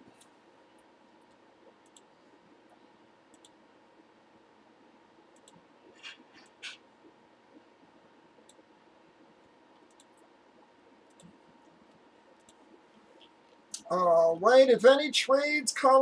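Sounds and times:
computer mouse clicks: 0:00.1 - 0:02.1, 0:02.7 - 0:03.6, 0:05.3 - 0:06.8, 0:08.4 - 0:08.7, 0:09.4 - 0:10.3, 0:11.0 - 0:13.8.

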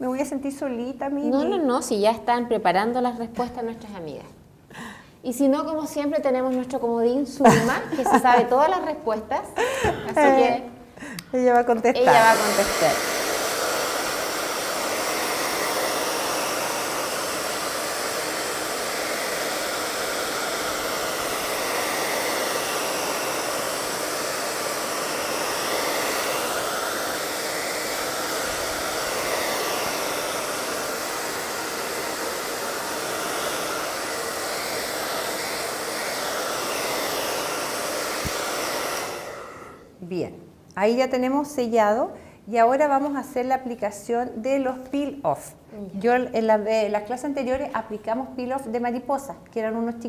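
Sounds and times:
hair dryer blowing: 0:12.0 - 0:40.0.

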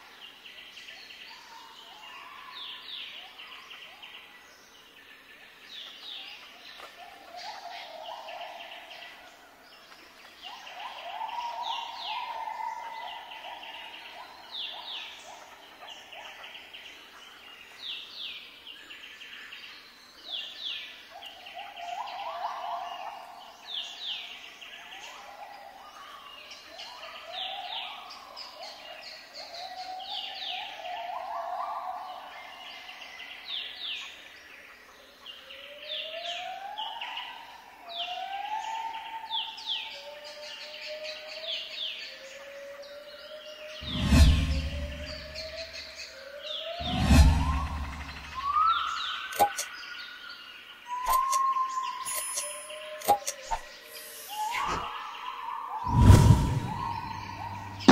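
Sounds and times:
finches chirping: 0:46.8 - 0:49.9, 0:56.6 - 0:57.9
low drawn-out tone: 0:55.9 - 0:57.9.

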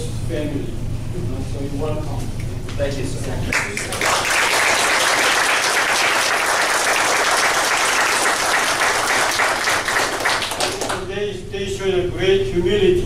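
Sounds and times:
crowd applauding: 0:03.5 - 0:11.1.

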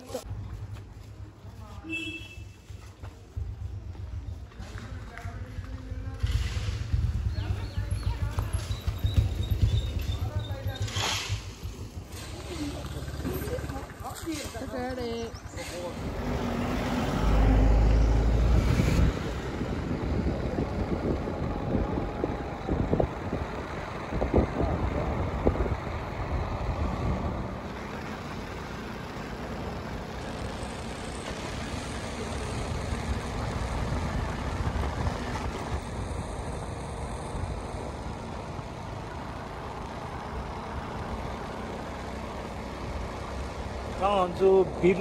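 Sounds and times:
scooter road noise: 0:00.0 - 0:45.0
wind rushing over microphone: 0:05.8 - 0:10.8, 0:17.8 - 0:27.7, 0:32.8 - 0:38.0.

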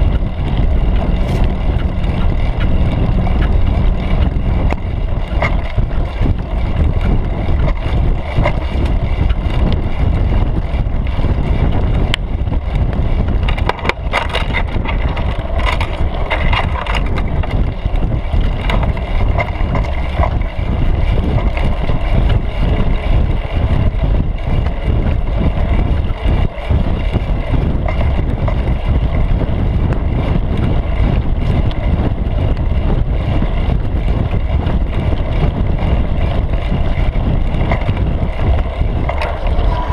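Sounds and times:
rattles and clicks: 0:00.0 - 0:23.6, 0:32.4 - 0:39.9
bike rolling over dirt trail: 0:00.0 - 0:39.9
wind rumble: 0:00.0 - 0:39.9.

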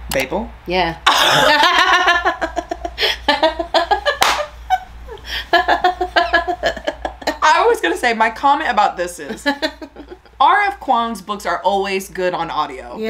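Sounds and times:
women talking: 0:00.1 - 0:01.9, 0:07.2 - 0:13.0
women laughing: 0:01.1 - 0:07.4, 0:09.2 - 0:10.4.

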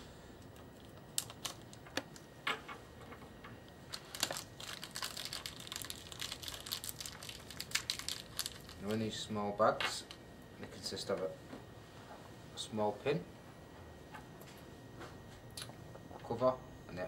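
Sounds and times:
plastic bag crinkling: 0:00.6 - 0:01.8, 0:03.9 - 0:09.2.

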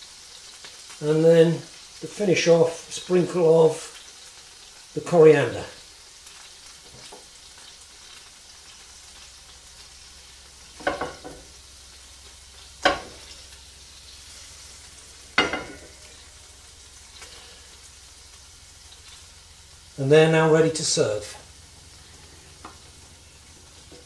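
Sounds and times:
scallops sizzling in oil: 0:00.0 - 0:24.0
frying pan clatters: 0:10.7 - 0:11.5, 0:12.8 - 0:13.5, 0:15.3 - 0:16.2.

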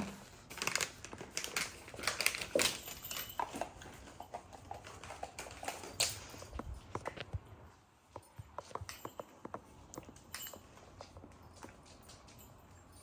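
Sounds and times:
treats rattling in plastic ball: 0:00.0 - 0:07.3.

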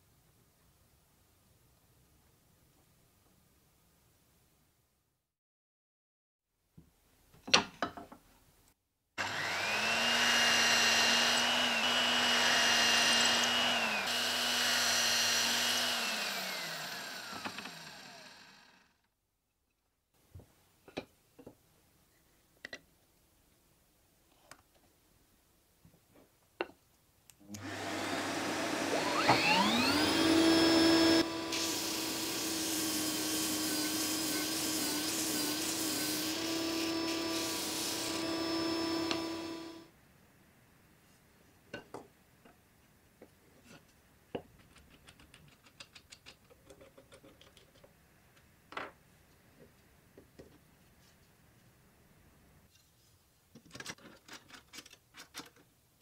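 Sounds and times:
disc sander whining: 0:09.2 - 0:18.9, 0:27.6 - 0:39.8.

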